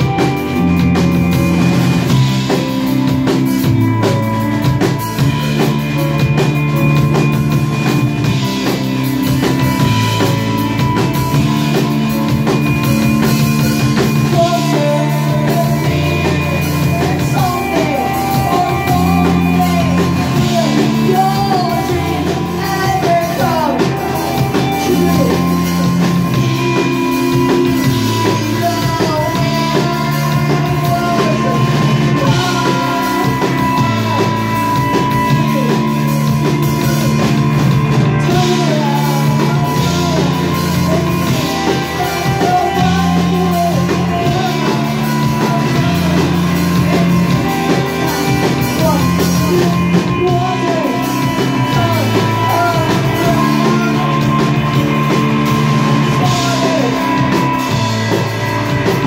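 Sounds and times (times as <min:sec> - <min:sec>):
drum kit: 0:00.0 - 0:59.0
electric guitar: 0:00.0 - 0:59.0
keyboard: 0:00.0 - 0:59.0
low bass notes: 0:00.0 - 0:59.0
woman singing: 0:14.2 - 0:25.5, 0:27.8 - 0:34.6.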